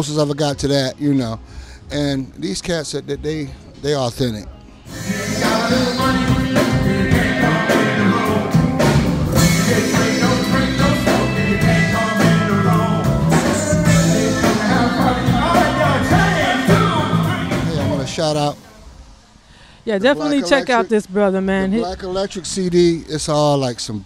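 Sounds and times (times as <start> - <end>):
person singing: 4.9 - 18.2
funk band playing: 4.9 - 18.6.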